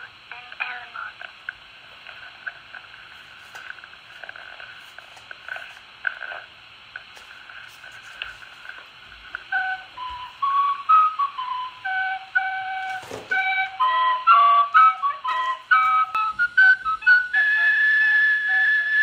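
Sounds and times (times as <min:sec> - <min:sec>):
cassette tape hiss: 0:00.0 - 0:19.0
recorder playing a tune: 0:09.3 - 0:19.0.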